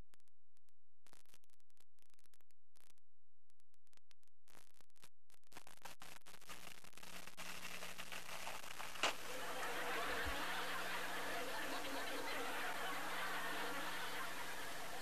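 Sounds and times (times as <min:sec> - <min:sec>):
audience laughter: 0:09.1 - 0:15.0.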